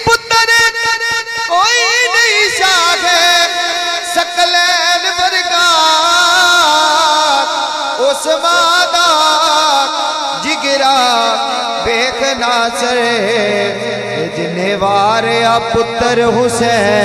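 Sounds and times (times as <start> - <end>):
man singing long wavering notes: 8.0 - 17.0.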